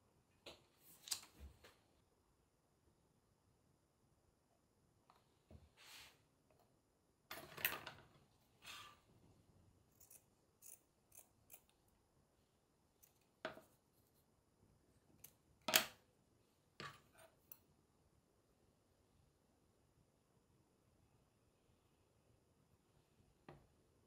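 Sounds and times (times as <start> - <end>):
scissors snipping: 9.9 - 11.8.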